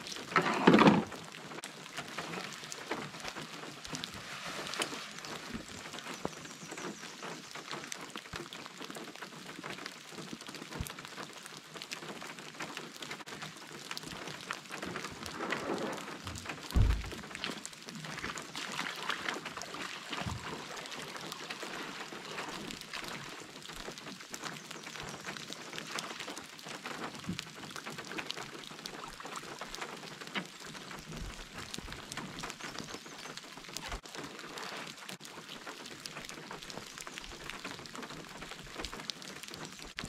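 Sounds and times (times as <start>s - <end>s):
water splashing: 0.0s - 8.0s, 13.4s - 32.2s
rain falling on water: 0.0s - 40.0s
heavy thump: 16.7s - 17.2s.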